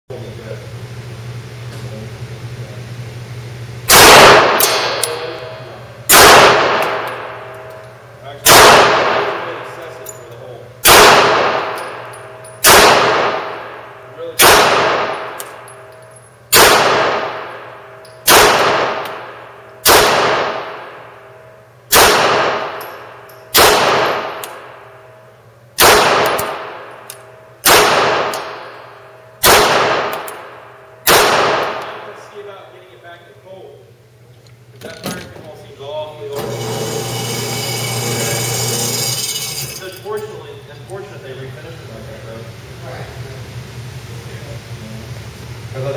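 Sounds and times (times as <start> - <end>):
pistol shots echoing: 3.9 - 5.4, 6.1 - 7.8, 8.4 - 9.7, 10.8 - 15.7, 16.5 - 21.1, 21.9 - 24.9, 25.8 - 32.2.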